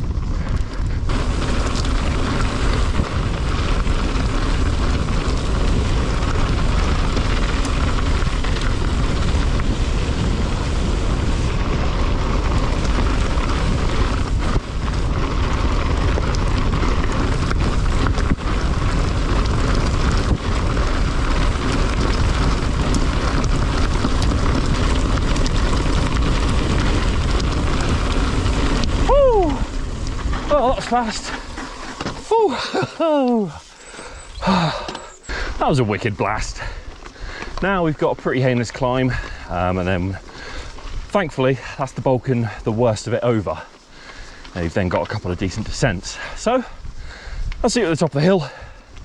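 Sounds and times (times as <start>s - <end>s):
wind noise on microphone: 0.0s - 32.9s, 43.9s - 49.0s
bike tyres rumbling on track: 0.0s - 49.0s.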